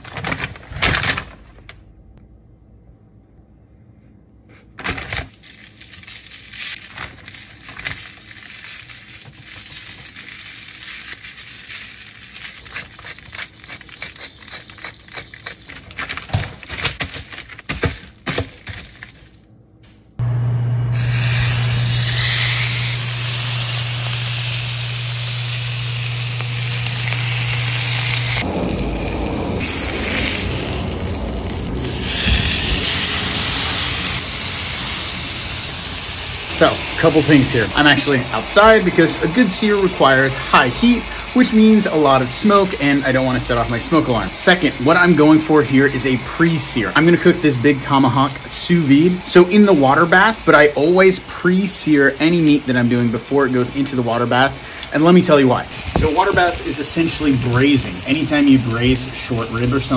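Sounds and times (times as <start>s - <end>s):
paper crinkling: 0.0s - 1.7s, 4.8s - 19.5s, 55.7s - 59.9s
steak sizzling in hot pan: 20.9s - 37.7s, 55.7s - 59.9s.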